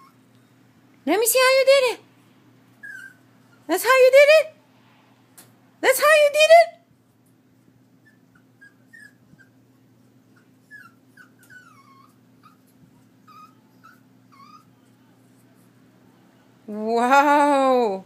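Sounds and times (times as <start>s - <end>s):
puppy whimpering: 0.0s - 0.3s, 2.8s - 3.7s, 8.0s - 9.6s, 10.3s - 15.0s.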